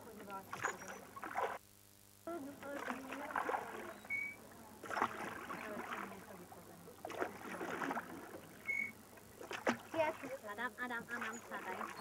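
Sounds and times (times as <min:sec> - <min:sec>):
oars dipping through water: 0:00.2 - 0:01.6, 0:02.6 - 0:12.0
short high squeak: 0:04.0 - 0:04.4, 0:08.6 - 0:09.0.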